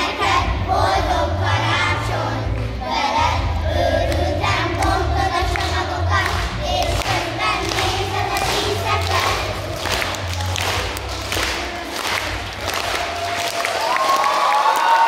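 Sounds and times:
children's choir singing: 0:00.0 - 0:12.6.

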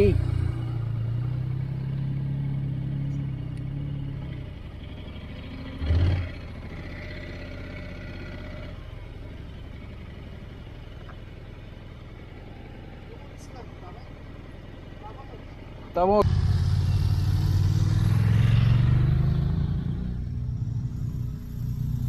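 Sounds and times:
motorcycle engine idling: 0:00.0 - 0:17.6.

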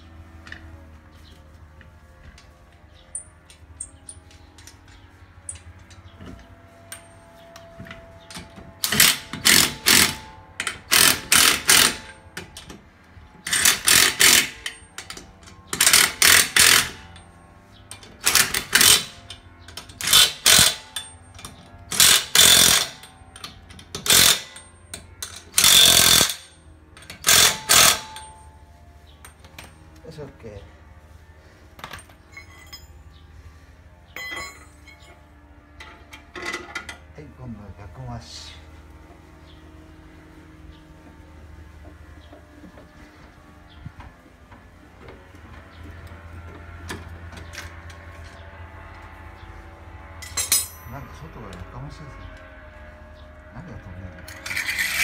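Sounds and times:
impact wrench hammering: 0:08.8 - 0:12.8, 0:13.4 - 0:17.1, 0:17.9 - 0:28.5, 0:34.2 - 0:35.2.

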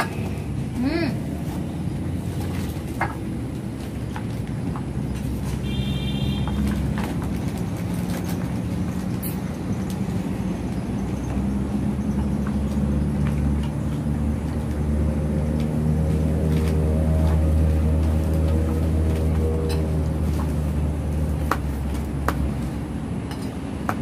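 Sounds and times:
vehicle engine running: 0:00.1 - 0:23.1.

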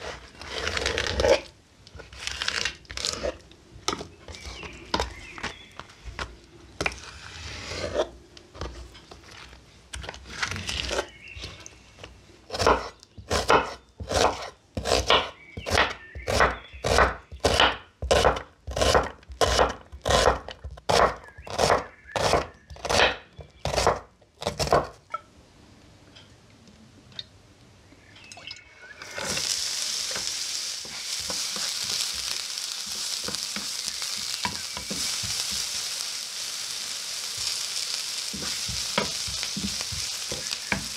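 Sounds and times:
knife chopping on wooden board: 0:12.6 - 0:25.0
wooden spoon stirring: 0:29.0 - 0:36.0, 0:38.2 - 0:40.9
onion sizzling in a pan: 0:29.0 - 0:40.9.

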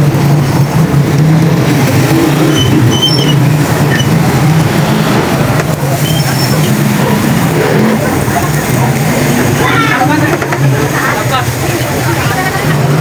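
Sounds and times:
noisy wash: 0:00.0 - 0:13.0.

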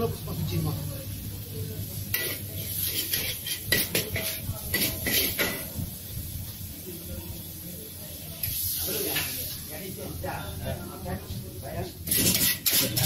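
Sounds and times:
ladle clanking against wok: 0:02.0 - 0:05.8, 0:12.0 - 0:13.0.

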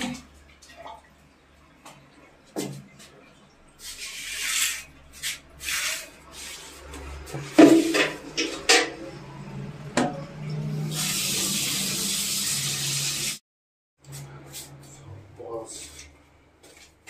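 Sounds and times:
water hissing in toilet: 0:10.8 - 0:13.4.

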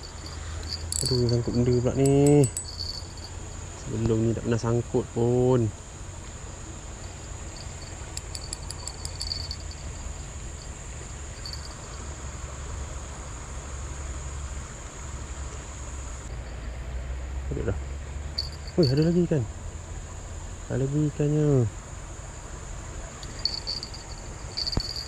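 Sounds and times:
crickets droning: 0:00.0 - 0:25.0.

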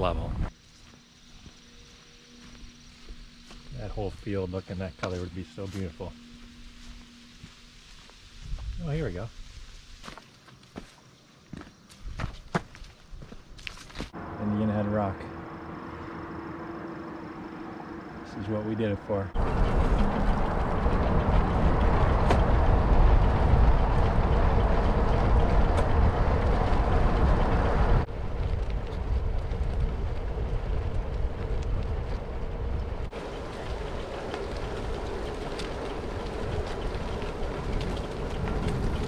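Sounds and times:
train rumbling past: 0:14.2 - 0:39.0.

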